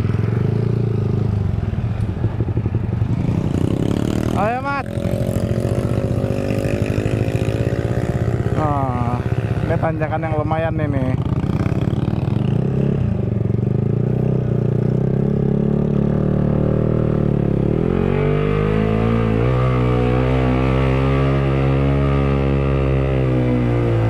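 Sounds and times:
motorcycle engine pulling uphill: 0.0s - 24.0s.

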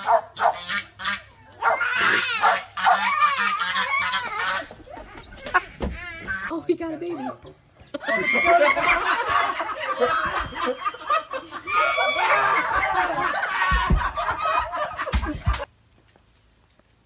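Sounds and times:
people laughing loudly: 8.0s - 15.7s.

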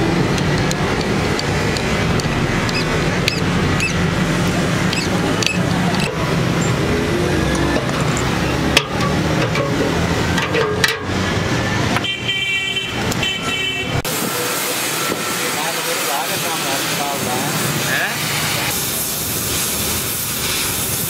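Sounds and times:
street traffic noise: 0.0s - 21.0s
steel rod clicking on steel: 0.3s - 4.0s, 4.9s - 6.8s.

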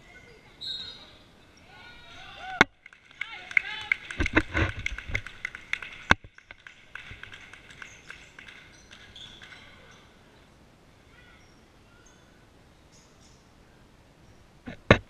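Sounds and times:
sneaker squeaks: 0.6s - 1.2s, 8.7s - 10.0s.

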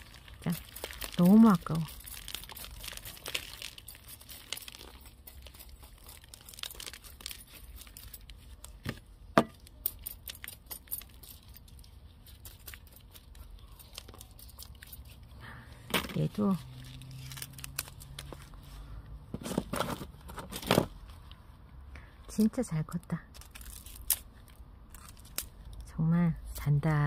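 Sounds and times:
soil and stones crackling: 0.0s - 8.4s.

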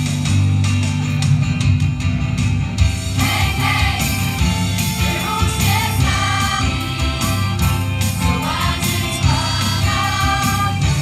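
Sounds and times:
live band with bass and drums: 0.0s - 11.0s
choir singing upbeat song: 3.1s - 11.0s.

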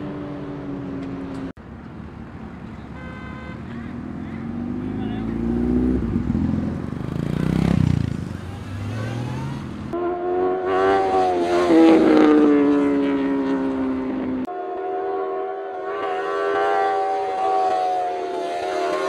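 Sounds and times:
motorcycle engines revving: 2.6s - 19.0s
motorcycle engine high revs whine: 4.2s - 14.6s, 15.3s - 19.0s.

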